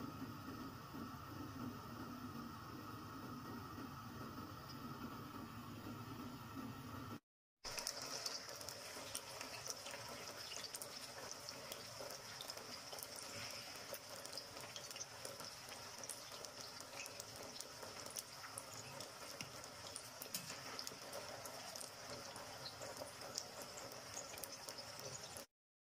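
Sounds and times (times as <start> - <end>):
okra sizzling in oil: 7.7 - 25.5.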